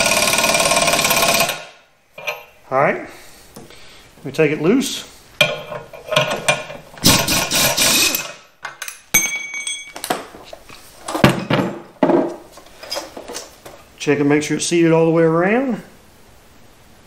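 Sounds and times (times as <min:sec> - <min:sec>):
pneumatic impact wrench: 0:00.0 - 0:01.8, 0:06.2 - 0:08.4
metal clanks: 0:05.4 - 0:07.6
ringing clink: 0:09.1 - 0:10.0.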